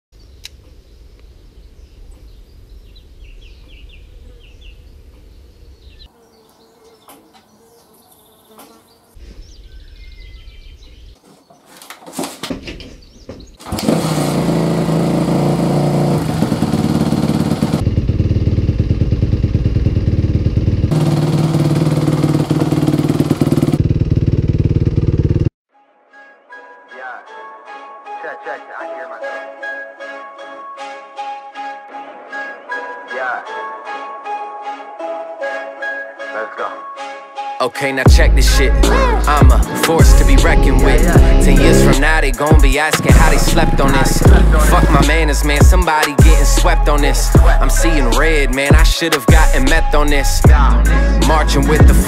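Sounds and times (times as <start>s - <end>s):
dirt bike engine revving: 13.6s - 25.5s, 38.1s - 48.6s.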